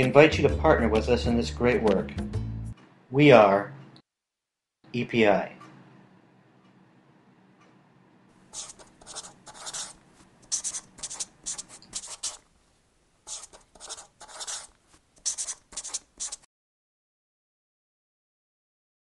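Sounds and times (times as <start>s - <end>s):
marker pen scratching on paper: 8.5s - 12.4s, 13.2s - 16.5s.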